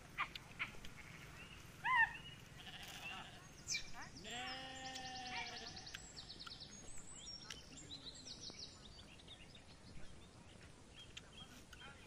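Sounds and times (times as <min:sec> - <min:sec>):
sheep bleating: 0:02.6 - 0:03.4, 0:04.2 - 0:05.9.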